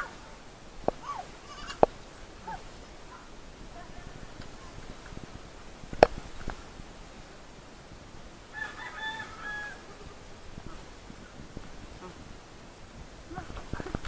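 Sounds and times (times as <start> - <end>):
rooster crowing: 8.5 - 10.2.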